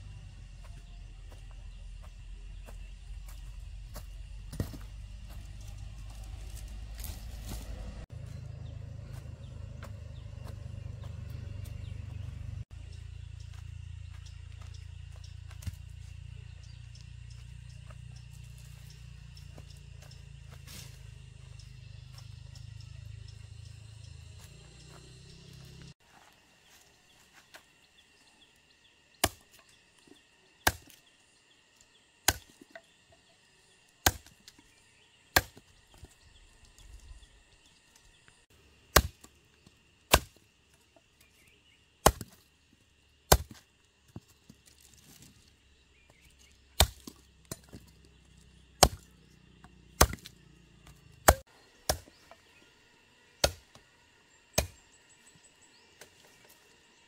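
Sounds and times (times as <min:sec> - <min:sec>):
blade chopping wood: 0:29.2 - 0:29.6, 0:30.6 - 0:31.0, 0:32.2 - 0:32.8, 0:34.0 - 0:34.6, 0:35.3 - 0:36.1, 0:38.9 - 0:39.3, 0:40.1 - 0:40.4, 0:42.0 - 0:42.4, 0:43.3 - 0:45.2, 0:46.1 - 0:47.9, 0:48.8 - 0:52.4, 0:53.4 - 0:53.8, 0:54.6 - 0:54.8.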